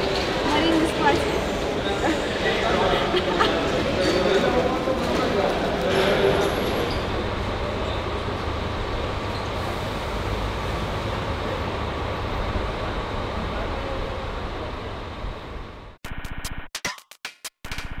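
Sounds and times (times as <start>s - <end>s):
outdoor background noise: 0.0s - 16.1s.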